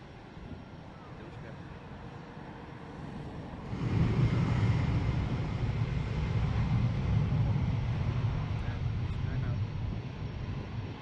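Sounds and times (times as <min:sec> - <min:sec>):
jet engines rumbling: 0:00.0 - 0:11.0.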